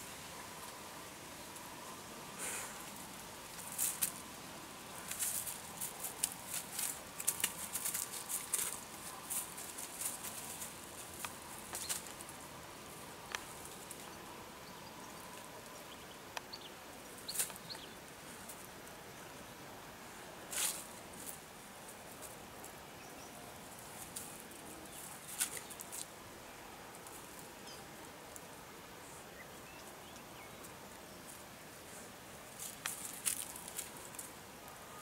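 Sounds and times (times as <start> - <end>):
dry leaves crackling: 2.4 - 14.2, 20.5 - 22.8, 23.4 - 26.2, 31.2 - 34.4.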